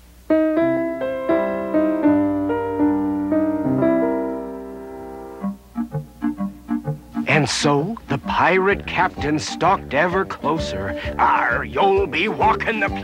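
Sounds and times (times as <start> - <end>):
short separate keyboard notes: 0.3 - 6.0
keyboard jingle with held notes: 0.3 - 7.4.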